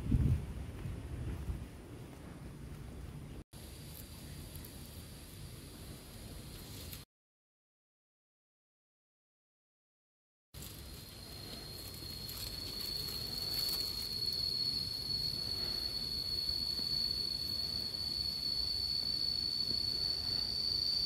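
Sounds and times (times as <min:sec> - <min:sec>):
insects trilling: 0:10.6 - 0:21.0.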